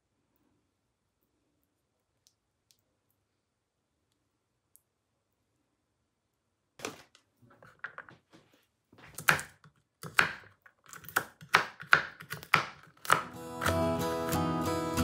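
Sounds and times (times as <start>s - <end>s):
knife chopping on cutting board: 9.0s - 13.8s
acoustic guitar music: 13.2s - 15.0s.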